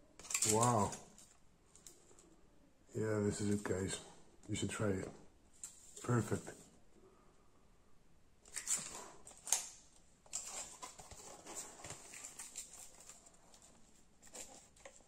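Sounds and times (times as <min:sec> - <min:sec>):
plastic film and paper crinkling: 0:00.2 - 0:01.9, 0:08.5 - 0:15.0.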